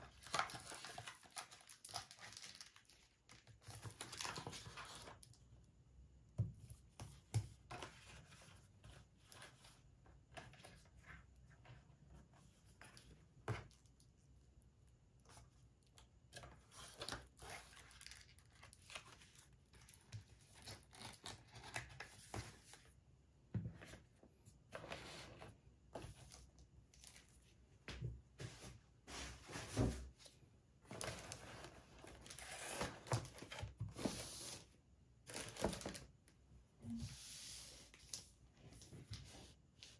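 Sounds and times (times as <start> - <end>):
plastic and cardboard rustling: 0.0 - 5.4, 23.6 - 36.2.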